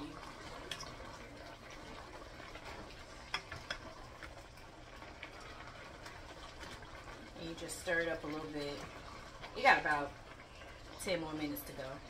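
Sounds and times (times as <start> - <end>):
faint simmer: 0.0 - 12.0.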